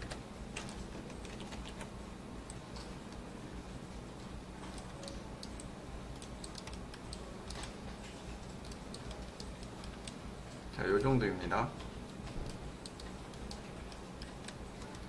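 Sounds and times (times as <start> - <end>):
steady low hum: 0.0 - 15.0
computer keyboard clicks: 4.7 - 7.8, 8.4 - 10.2, 12.4 - 15.0.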